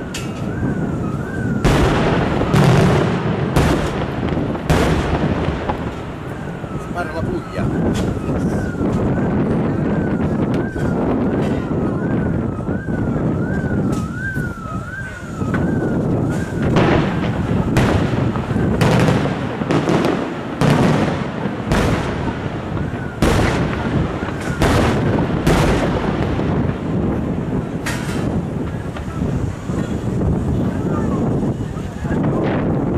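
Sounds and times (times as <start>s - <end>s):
firework shells booming: 0.0s - 12.4s, 15.4s - 30.8s
siren wailing: 0.0s - 27.8s.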